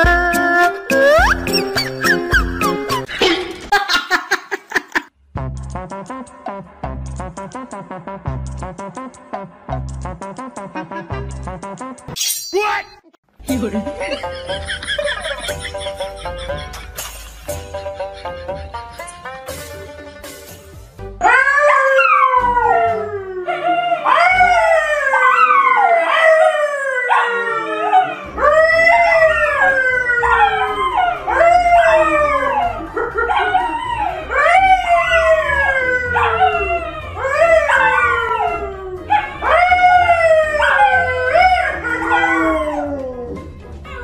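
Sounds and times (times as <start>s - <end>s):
dog howling: 21.2s - 44.0s.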